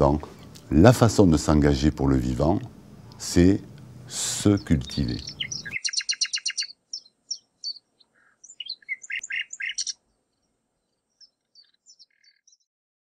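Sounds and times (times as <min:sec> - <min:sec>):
small birds chirping: 0:02.5 - 0:12.7.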